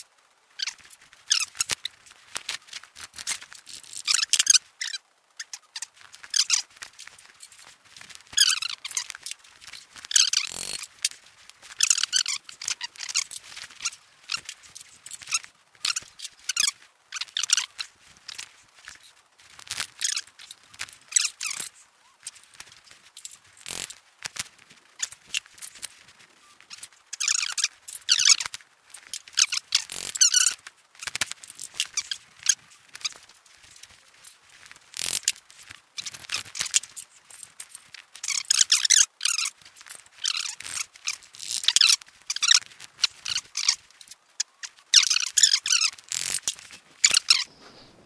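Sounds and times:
metal parts scraping and squeaking: 0:02.7 - 0:07.7, 0:08.3 - 0:10.9, 0:11.8 - 0:19.1, 0:19.7 - 0:22.4, 0:23.2 - 0:23.9, 0:26.7 - 0:34.4, 0:35.0 - 0:35.4, 0:36.0 - 0:44.1, 0:44.7 - 0:48.0.

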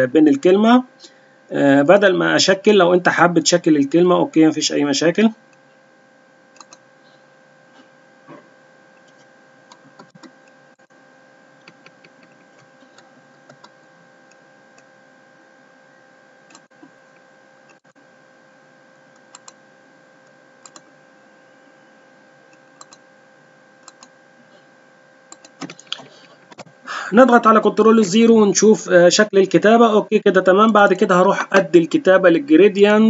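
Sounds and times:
faint electrical hum: 0:00.0 - 0:33.0
computer mouse clicking: 0:06.6 - 0:06.8, 0:09.0 - 0:10.6, 0:11.6 - 0:14.9, 0:16.5 - 0:17.8, 0:19.1 - 0:19.6, 0:20.6 - 0:20.9, 0:22.5 - 0:23.0, 0:23.8 - 0:24.1, 0:25.3 - 0:26.8.

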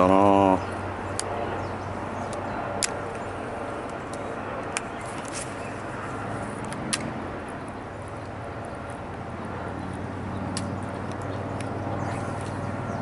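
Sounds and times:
outdoor background noise: 0:00.0 - 0:13.0
sharp clicks: 0:01.1 - 0:01.4, 0:02.2 - 0:03.2.

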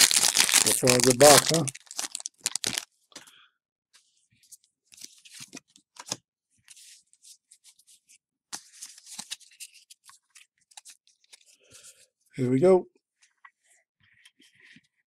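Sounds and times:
trading cards rustling and flicking: 0:00.0 - 0:02.8.

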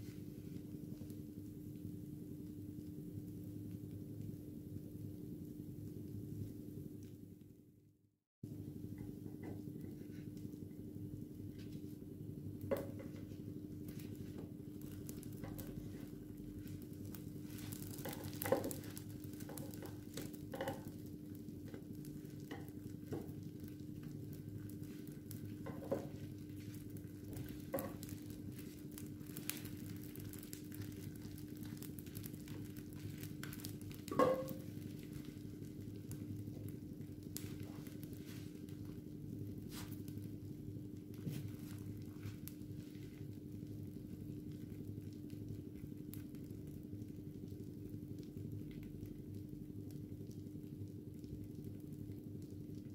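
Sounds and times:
pancakes sizzling in a pan: 0:12.6 - 0:40.6.

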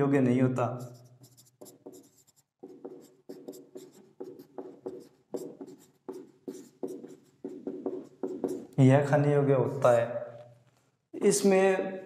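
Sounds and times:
marker squeaking on whiteboard: 0:00.8 - 0:08.8.

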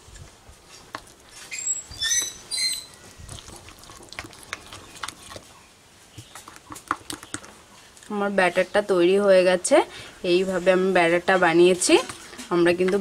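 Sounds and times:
short high squeaks: 0:01.4 - 0:03.0
spoon stirring batter in bowl: 0:06.2 - 0:07.6.

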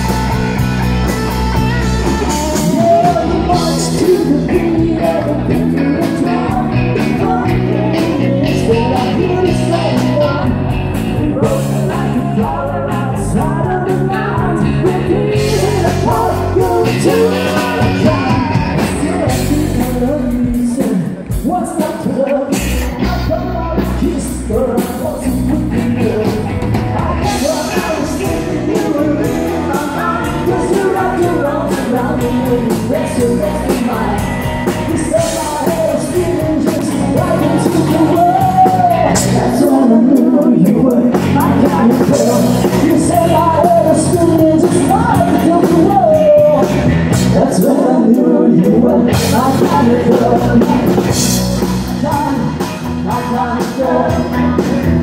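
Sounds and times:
live country-rock band: 0:00.0 - 0:55.0
man singing: 0:00.0 - 0:55.0.

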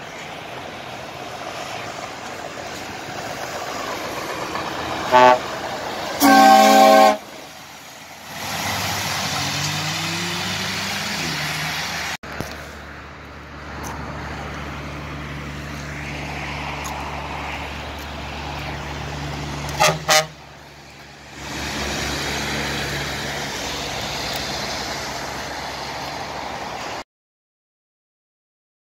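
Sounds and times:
diesel trucks driving past: 0:00.0 - 0:27.0
truck horn toots: 0:05.1 - 0:05.5, 0:06.2 - 0:07.4, 0:19.7 - 0:20.4.

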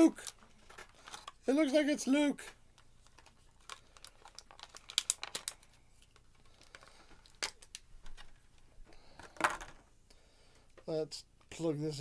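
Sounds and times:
packaging crinkling and crackling: 0:00.0 - 0:01.4, 0:02.4 - 0:08.6.

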